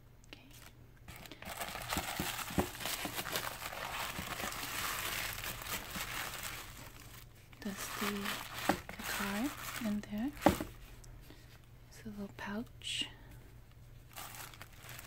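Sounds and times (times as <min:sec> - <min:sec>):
tissue paper crinkling: 0:00.6 - 0:10.8, 0:14.1 - 0:15.0.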